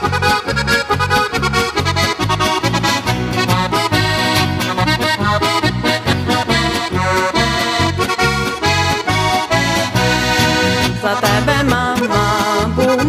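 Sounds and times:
button accordion melody: 0.0 - 13.0
pulsing bass accompaniment: 0.0 - 13.0.

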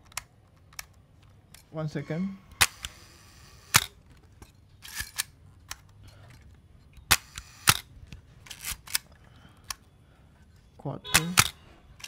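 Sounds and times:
camera shutter clicks: 2.5 - 4.0, 4.8 - 5.3, 7.1 - 7.9, 11.1 - 11.6
film advance lever ratcheting: 11.2 - 11.6.

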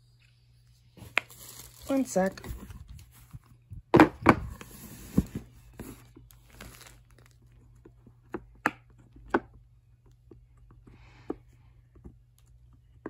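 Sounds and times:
handling rustle: 0.9 - 3.6, 4.6 - 7.5.

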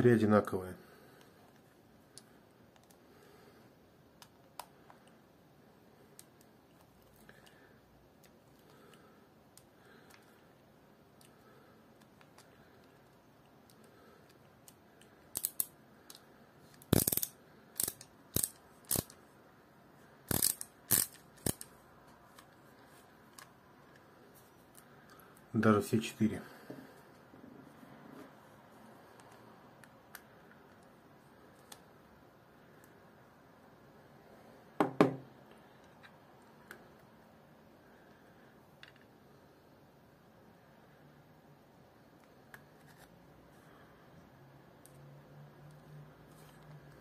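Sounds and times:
screwdriver clicking on reel: 16.8 - 19.2, 20.3 - 21.7.

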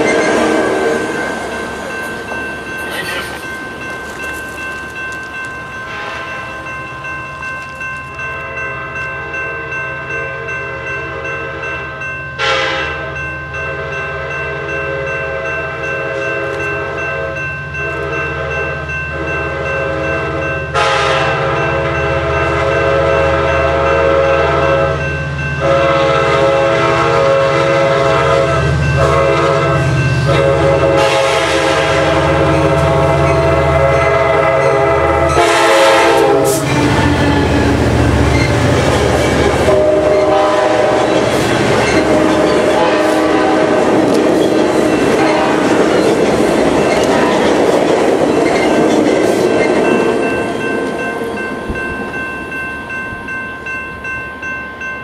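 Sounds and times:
train horn blasts: 0.0 - 1.4, 5.9 - 6.4, 12.4 - 17.4, 18.0 - 45.9
crossing bell ringing: 0.0 - 55.0
low train rumble: 0.0 - 55.0.

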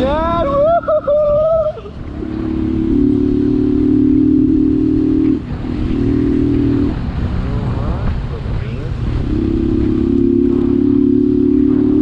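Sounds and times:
wind and road noise: 0.0 - 12.0
motorcycle engine running: 2.0 - 8.3, 8.9 - 12.0.

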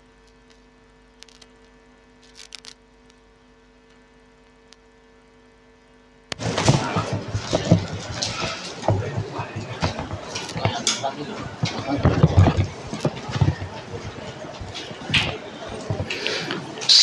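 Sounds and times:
sound system electrical hum: 0.0 - 17.0
microphone handling rustling and thumping: 6.3 - 16.8.

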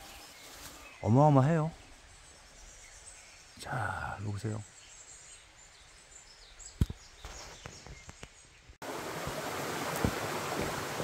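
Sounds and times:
stream rushing over rocks: 8.8 - 11.0.

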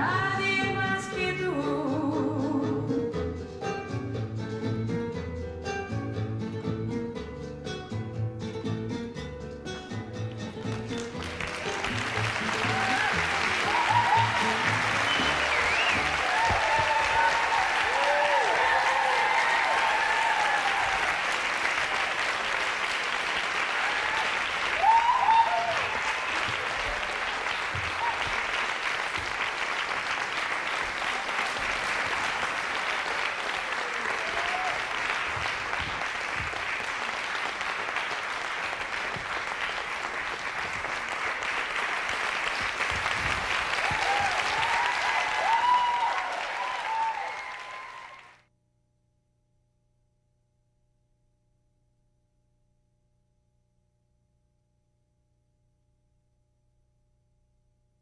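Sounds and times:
audience applauding: 10.6 - 48.4
shouted cheers: 11.6 - 22.4, 23.4 - 28.8, 31.0 - 35.2, 43.6 - 48.4.

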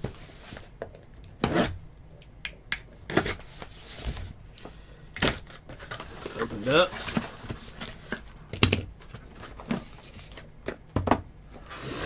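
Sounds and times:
cardboard and wrapper rustling: 5.2 - 10.8.

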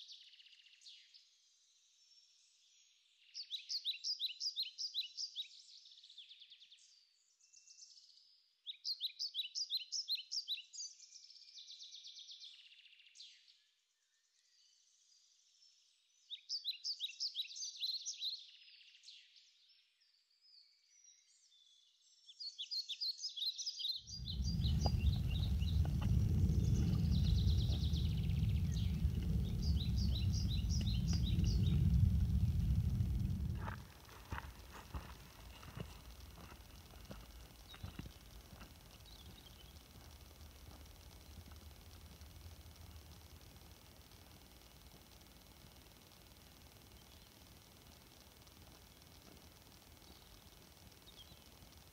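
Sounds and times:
songbird singing: 0.0 - 19.4, 20.5 - 51.9
wind buffeting microphone: 24.1 - 43.4.

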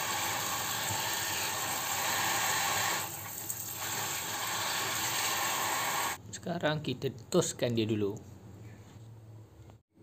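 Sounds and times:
tap water running into colander: 0.0 - 6.2.

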